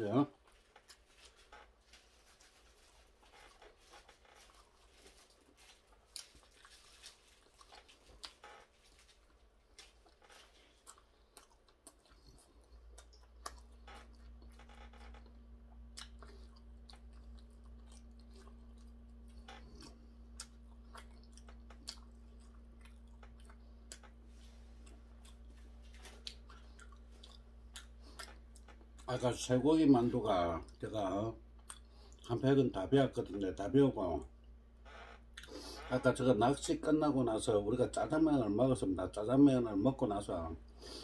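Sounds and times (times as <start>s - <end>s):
faint steady hum: 0.0s - 41.0s
person chewing with mouth clicks: 0.4s - 1.5s, 2.4s - 29.1s, 31.5s - 32.3s, 35.3s - 35.8s.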